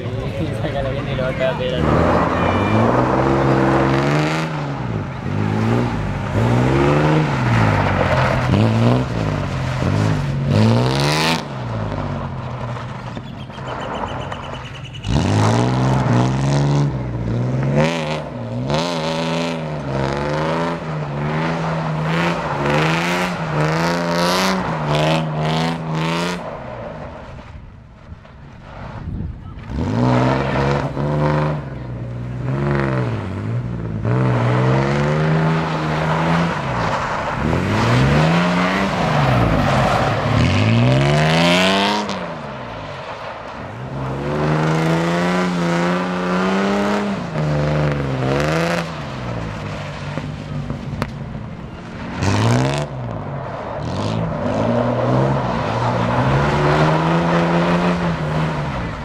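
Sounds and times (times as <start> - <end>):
car engine revving: 0.0 - 27.6, 29.6 - 59.0
wheels scrabbling on loose dirt: 5.3 - 16.3, 21.0 - 31.8, 35.3 - 44.8.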